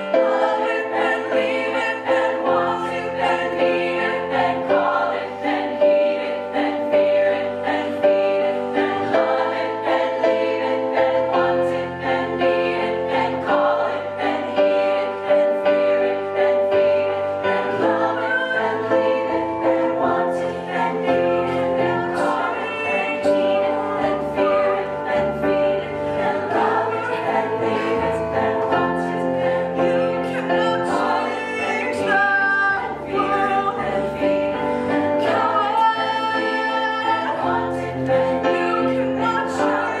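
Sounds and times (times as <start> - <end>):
women's choir singing: 0.0 - 40.0.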